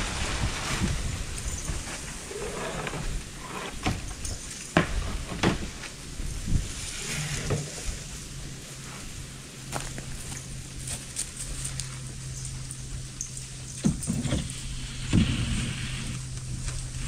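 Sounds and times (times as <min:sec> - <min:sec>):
wind rumble on microphone: 0:00.0 - 0:09.4.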